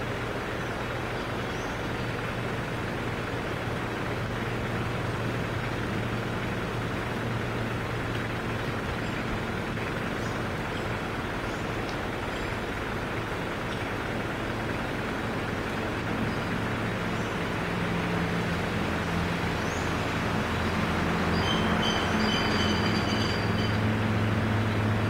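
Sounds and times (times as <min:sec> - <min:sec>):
low mechanical hum: 0:00.0 - 0:25.0.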